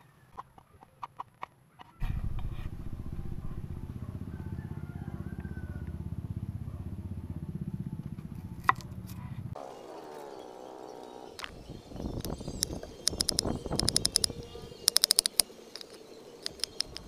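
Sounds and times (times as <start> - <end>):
engine running with low throb: 2.0 - 13.5.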